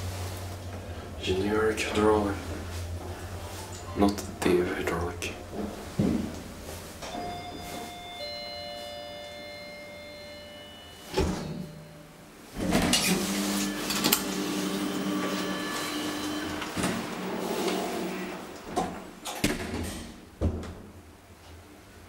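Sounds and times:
elevator hum: 0.0s - 21.2s
elevator door shutting: 3.6s - 20.9s
thin ringing tones: 7.1s - 12.3s.

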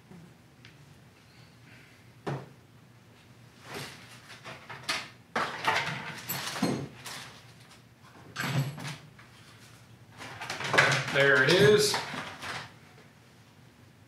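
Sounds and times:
metal tools rattling: 10.2s - 12.6s.

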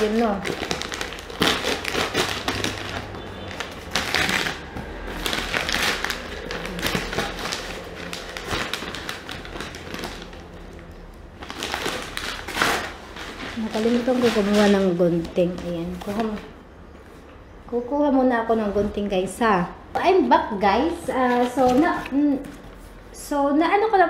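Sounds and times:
cardboard box crackling and scraping: 11.5s - 16.4s, 20.8s - 23.0s.

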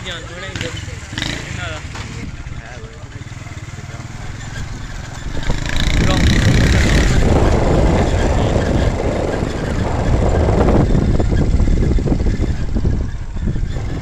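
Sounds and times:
motorcycle running: 0.0s - 14.0s
wind rumble on microphone: 4.6s - 14.0s.

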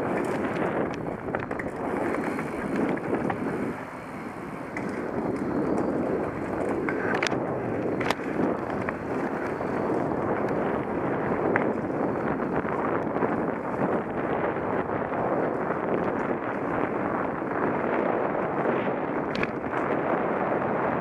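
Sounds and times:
wheels knocking on boardwalk: 0.0s - 14.6s
bike tyre noise: 0.0s - 21.0s
wind on microphone: 0.0s - 21.0s.

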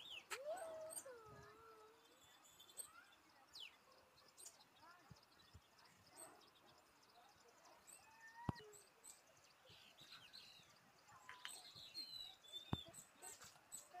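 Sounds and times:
bird chirps and whistled calls: 11.3s - 14.0s.

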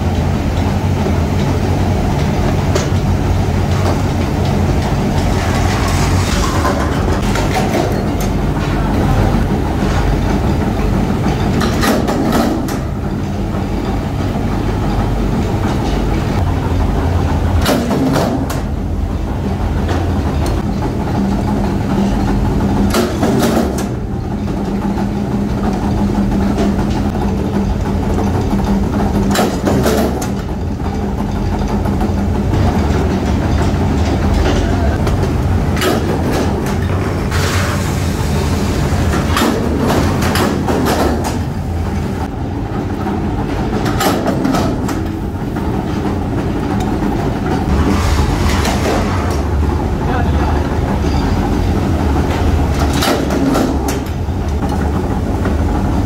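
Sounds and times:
metal clanks and strikes: 0.0s - 18.8s, 19.8s - 38.4s, 50.6s - 55.0s
machinery humming: 0.0s - 56.0s.

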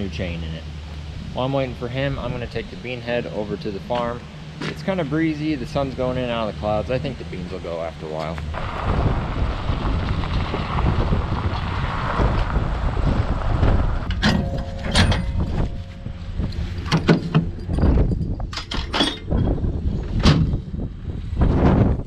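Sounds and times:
truck driving on gravel: 0.0s - 22.0s
wind on microphone: 8.4s - 22.0s
trailer hitch metallic clanking: 14.0s - 20.9s.

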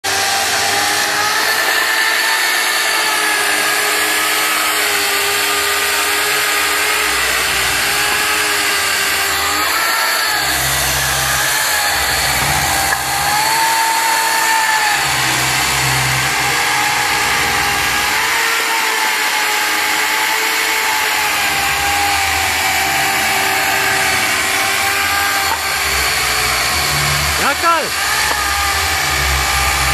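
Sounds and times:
power tool motor whine: 0.0s - 29.9s.

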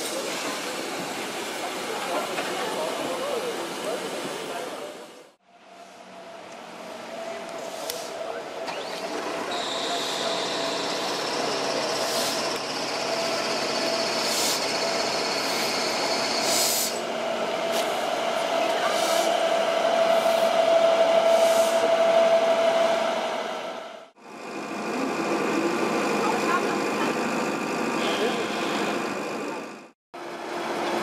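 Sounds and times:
steam locomotive rolling: 0.0s - 5.2s, 5.9s - 31.0s
short steam hisses: 21.3s - 21.9s.

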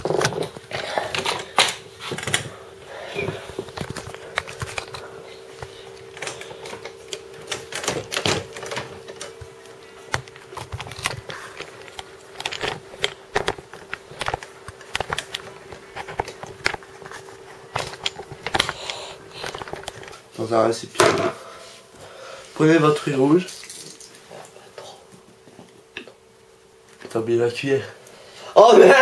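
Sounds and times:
steady hum: 0.0s - 29.0s.

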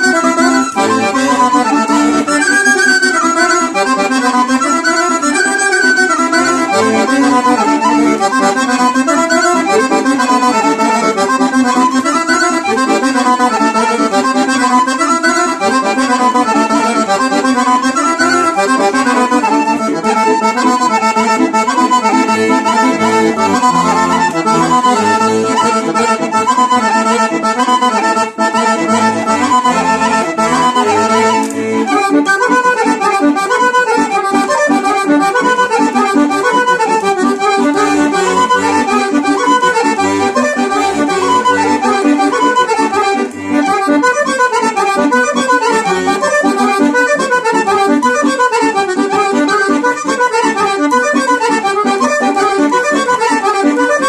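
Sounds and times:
whistle flute playing: 0.0s - 3.8s, 4.4s - 6.7s, 14.7s - 15.7s, 41.2s - 43.1s
accordion playing dance tune: 0.0s - 54.0s.

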